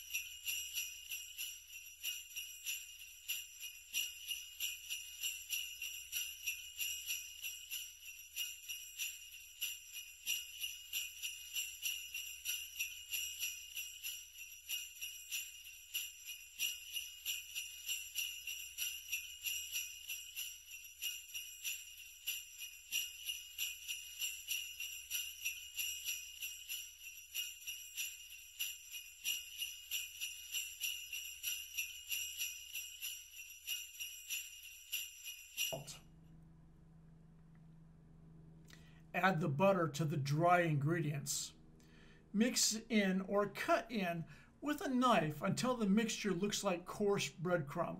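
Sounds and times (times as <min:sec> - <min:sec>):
jingle bells shaken: 0:00.0 - 0:36.0.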